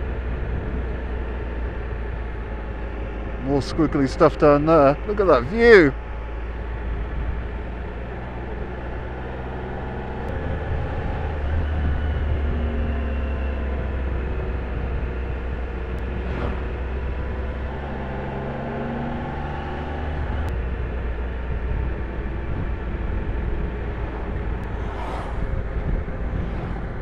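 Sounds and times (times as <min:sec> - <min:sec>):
low wind rumble: 0:00.0 - 0:27.0
motorcycle engine running: 0:06.0 - 0:27.0
brief whooshes: 0:16.1 - 0:16.7, 0:24.0 - 0:27.0.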